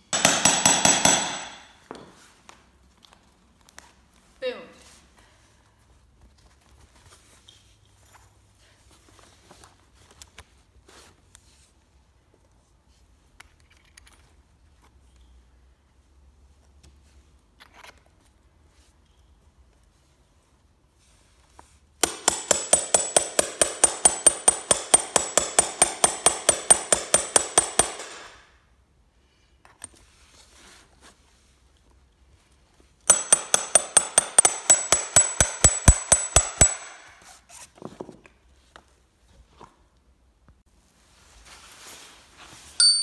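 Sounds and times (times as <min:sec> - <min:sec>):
hammer striking metal punch: 0:00.1 - 0:01.8, 0:22.0 - 0:28.4, 0:33.1 - 0:37.2, 0:42.8 - 0:43.0.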